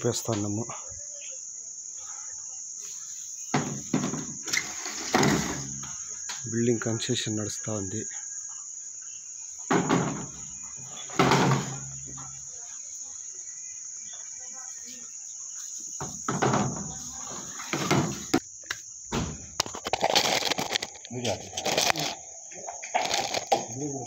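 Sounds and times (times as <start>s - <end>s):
crickets chirping: 0.0s - 24.0s
handling knocks: 9.7s - 12.3s.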